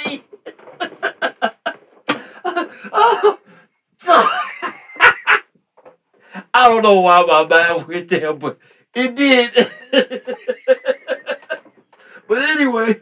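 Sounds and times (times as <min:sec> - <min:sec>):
man laughing: 0:00.5 - 0:03.4, 0:04.1 - 0:05.5, 0:09.5 - 0:11.7.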